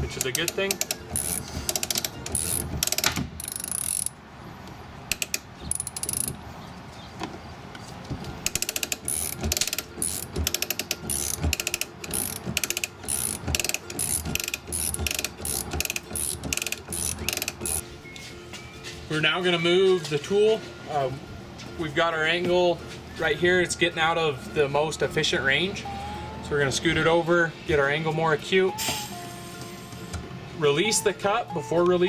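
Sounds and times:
ratchet pawl clicking: 0.1s - 4.2s, 5.1s - 6.4s, 8.5s - 17.8s.

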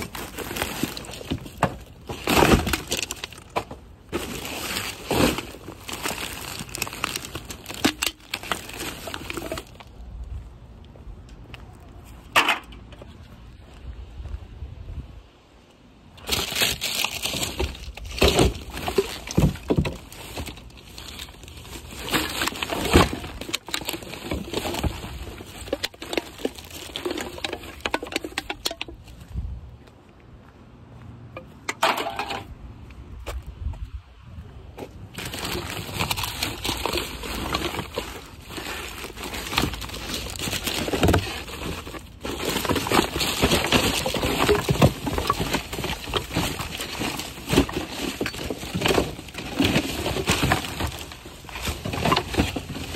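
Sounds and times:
plastic bags rustling: 0.0s - 10.0s, 16.2s - 28.9s, 35.2s - 52.9s
knocks and clatter in bin: 16.3s - 20.6s, 35.2s - 52.9s.

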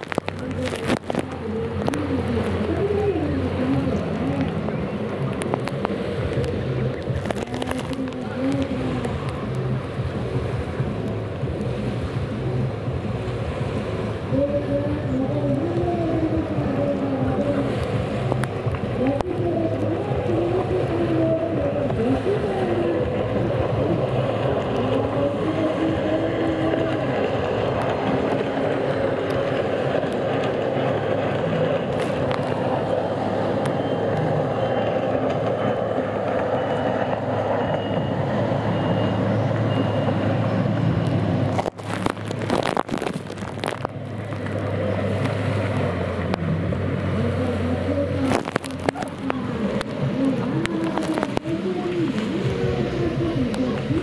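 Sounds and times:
sharp crackles: 0.0s - 11.6s, 40.7s - 46.4s, 48.1s - 52.6s
jet ski engines revving: 0.0s - 54.0s.

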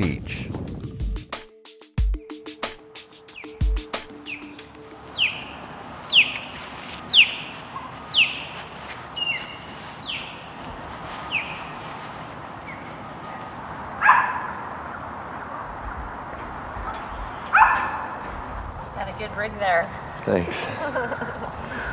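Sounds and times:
bird chirping: 3.2s - 10.6s, 11.2s - 11.8s, 12.6s - 13.6s, 16.8s - 18.0s
harsh bird call: 3.3s - 10.5s.

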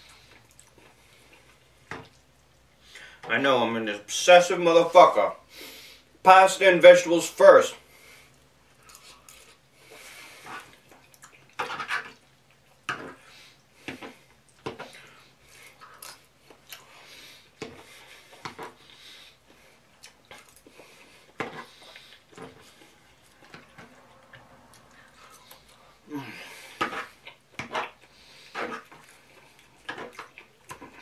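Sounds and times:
soft chewing: 0.0s - 3.1s, 8.0s - 31.0s.

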